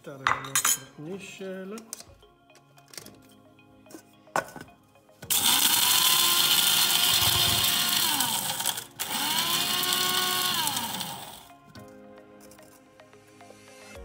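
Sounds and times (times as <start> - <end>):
coffee grinder whirring: 5.3 - 11.5.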